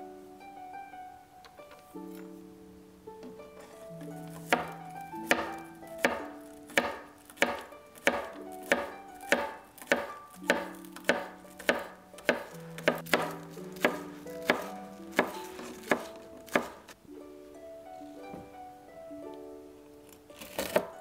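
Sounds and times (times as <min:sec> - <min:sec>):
plucked-string background music: 0:00.0 - 0:21.0
knife chopping on cutting board: 0:04.5 - 0:16.8.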